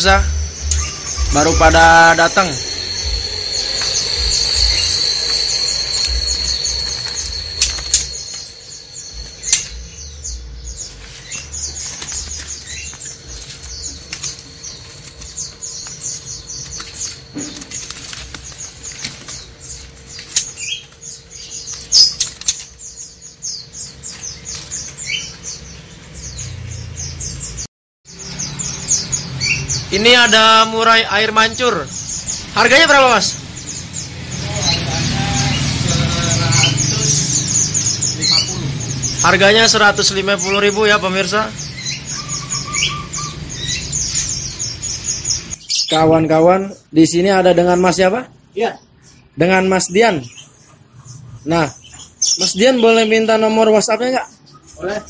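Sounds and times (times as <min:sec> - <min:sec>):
caged songbirds chirping: 0:00.0 - 0:55.0
thin high whistle: 0:00.7 - 0:08.6
bird wings fluttering: 0:03.2 - 0:09.8, 0:10.9 - 0:21.1, 0:21.7 - 0:22.8.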